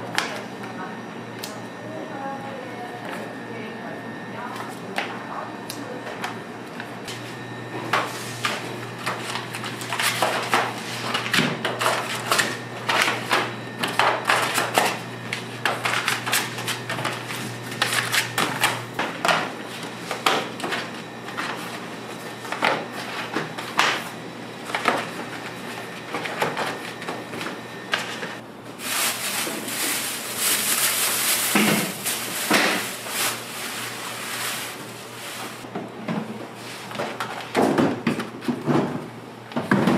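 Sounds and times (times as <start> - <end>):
utensils and trays clattering: 7.8 - 21.6, 28.0 - 35.6.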